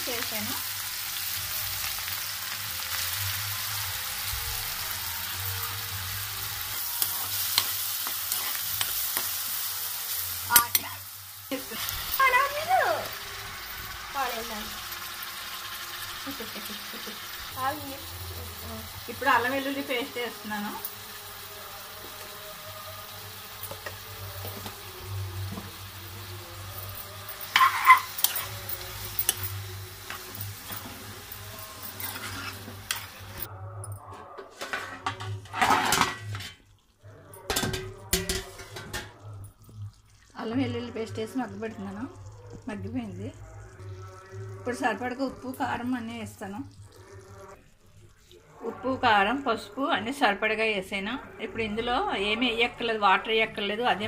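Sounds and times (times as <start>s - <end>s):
onions sizzling in oil: 0.0s - 33.5s, 40.0s - 50.2s
metal spoon scraping pan: 6.4s - 9.6s, 26.8s - 33.5s, 34.1s - 36.6s, 37.5s - 39.2s.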